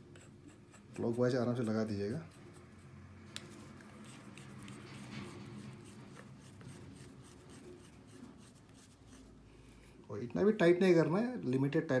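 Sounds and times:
metal and rubber scraping: 3.6s - 7.0s.

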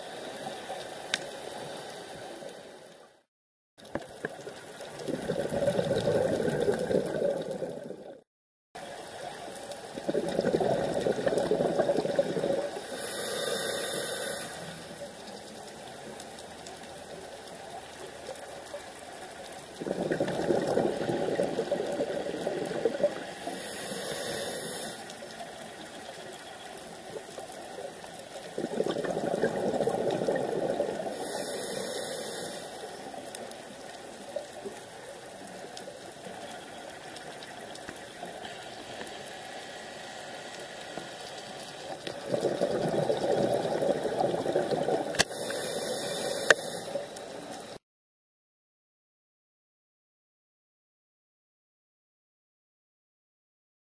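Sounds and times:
exhaust bubbles gushing: 4.9s - 8.2s, 9.9s - 12.9s, 19.7s - 23.4s, 28.4s - 31.2s, 42.1s - 45.3s
regulator air hiss: 12.9s - 14.8s, 23.5s - 25.1s, 31.1s - 33.0s, 45.2s - 47.1s.

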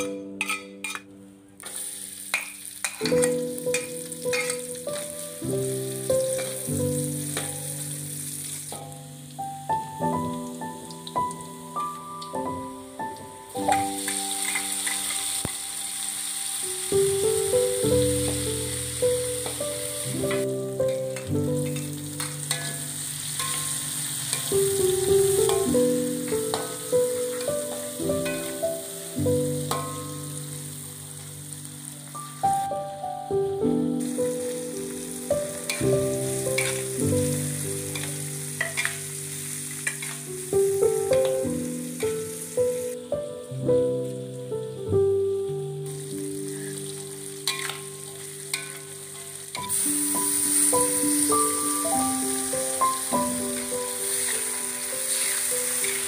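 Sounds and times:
metal spatula scraping wok: 0.0s - 1.1s, 1.8s - 5.2s, 21.6s - 24.8s, 35.7s - 37.0s, 37.9s - 40.4s, 47.4s - 49.8s, 53.6s - 56.0s
shallots sizzling in hot oil: 0.0s - 44.8s, 45.4s - 56.0s
soft background music: 0.0s - 56.0s
melody of held notes: 3.0s - 56.0s.

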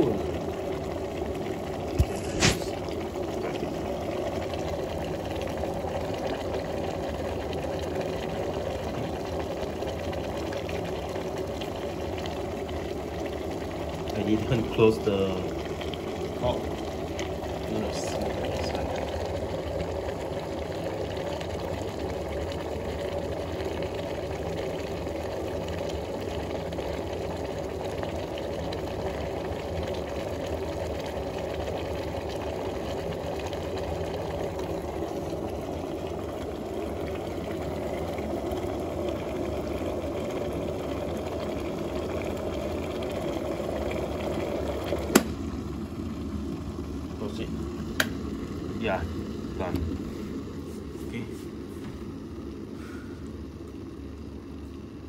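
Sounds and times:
kettle water boiling: 0.0s - 55.0s
kettle switch click: 45.1s - 45.4s, 48.0s - 48.2s.

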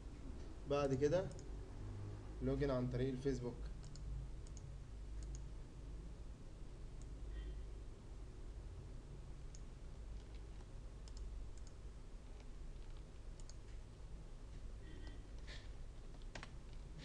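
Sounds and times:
low steady hum: 0.0s - 17.0s
computer mouse clicks: 1.3s - 1.5s, 3.8s - 5.5s, 9.5s - 13.8s, 15.0s - 16.8s.

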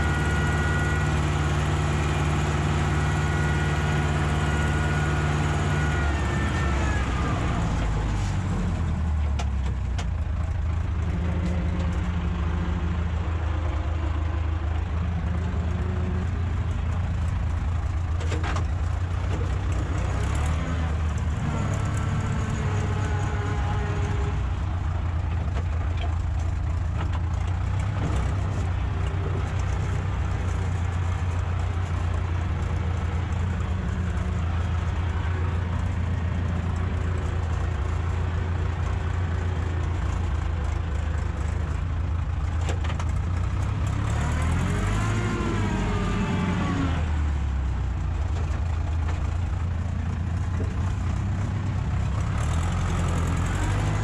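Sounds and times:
tractor diesel engine under load: 0.0s - 54.0s.

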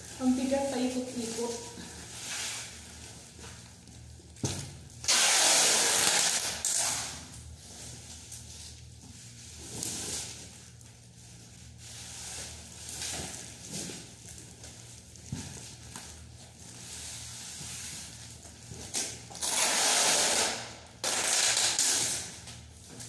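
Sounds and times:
packing tape rasping off roll: 5.0s - 7.4s, 18.8s - 22.6s.

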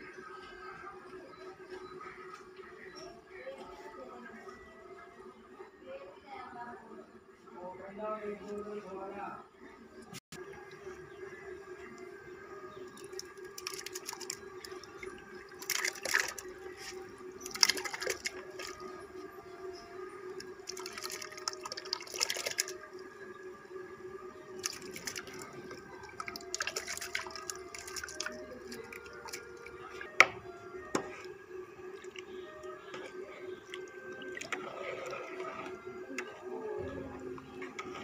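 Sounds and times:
grain splashing into liquid: 13.0s - 18.8s, 20.6s - 22.8s.

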